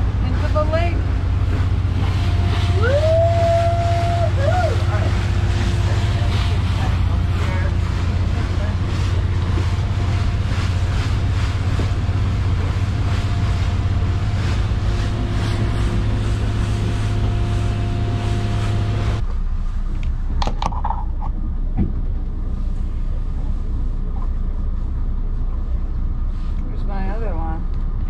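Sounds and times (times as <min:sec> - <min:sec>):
wind and water hiss: 0:00.0 - 0:20.4
boat engine humming: 0:00.0 - 0:28.0.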